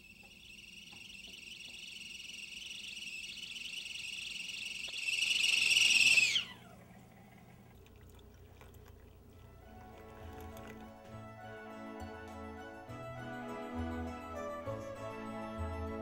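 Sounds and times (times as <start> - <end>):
kettle whistling: 0.0 - 7.3.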